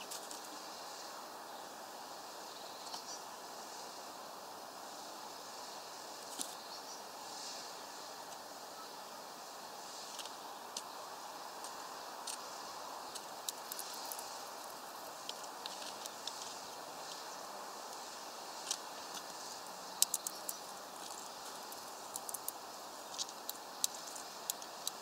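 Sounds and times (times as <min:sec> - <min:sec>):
faint hiss: 0:00.0 - 0:25.0
bird beak and feet tapping: 0:20.0 - 0:25.0.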